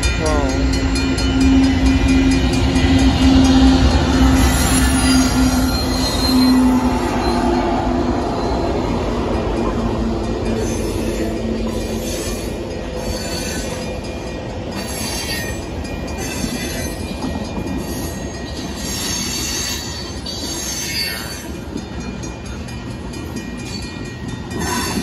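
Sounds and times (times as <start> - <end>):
train wheels rumbling on rail: 0.0 - 25.0
high-pitched wheel squeal: 3.5 - 8.8, 10.6 - 13.9.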